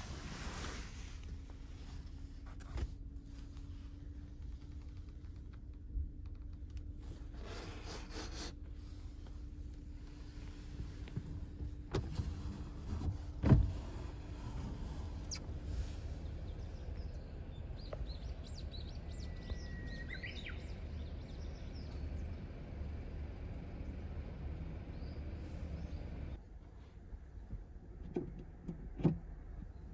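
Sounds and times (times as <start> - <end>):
low outdoor rumble: 0.0 - 29.9
small birds chirping: 15.1 - 22.7, 23.5 - 26.4
bush warbler whistling song: 16.2 - 22.5.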